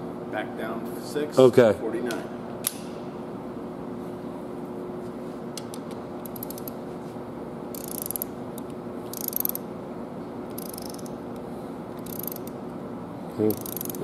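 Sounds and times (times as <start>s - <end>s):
steady low hum: 0.0s - 14.0s
ratchet wrench clicking: 6.2s - 6.8s, 7.7s - 9.6s, 10.5s - 11.2s, 12.0s - 12.6s, 13.5s - 14.0s.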